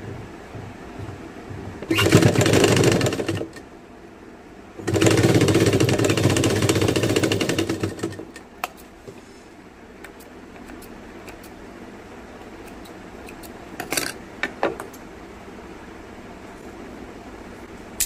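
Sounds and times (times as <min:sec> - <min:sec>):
sewing machine stitching: 0:01.8 - 0:03.6, 0:04.8 - 0:08.4.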